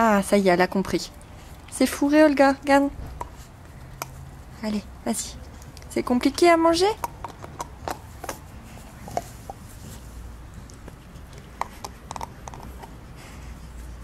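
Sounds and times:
dog teeth clicking on chew bone: 3.1 - 4.2, 6.8 - 9.6, 10.7 - 13.0.

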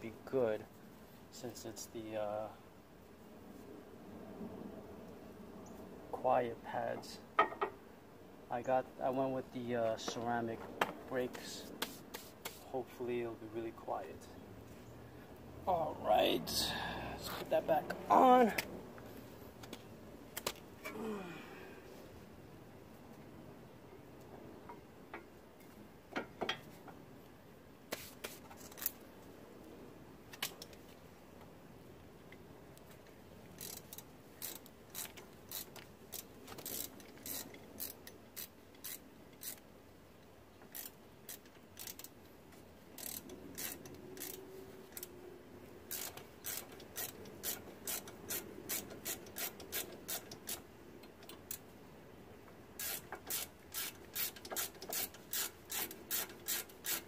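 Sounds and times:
ratchet wrench clicking: 33.5 - 39.6, 40.6 - 42.2, 42.9 - 45.1, 45.9 - 51.6, 52.8 - 57.0.

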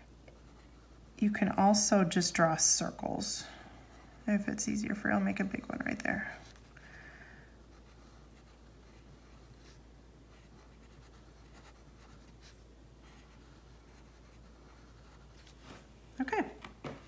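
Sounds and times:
pencil scratching on paper: 0.3 - 1.6, 7.7 - 15.6.

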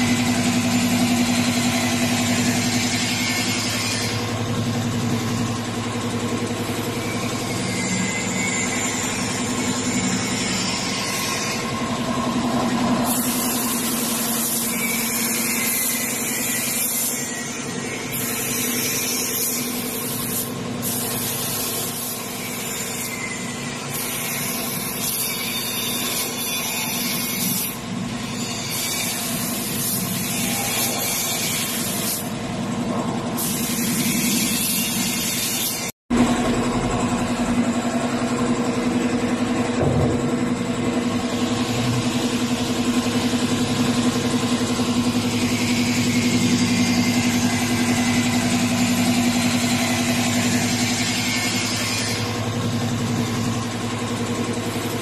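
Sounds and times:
air compressor running: 0.0 - 55.0
spray gun hissing: 13.1 - 14.7, 33.4 - 34.8.

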